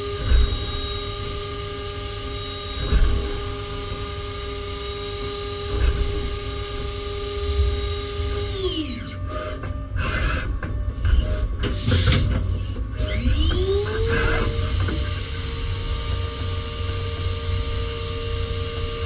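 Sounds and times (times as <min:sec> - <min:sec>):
machine spindle whine: 0:00.0 - 0:19.0
hiss and clatter bursts: 0:11.6 - 0:12.5.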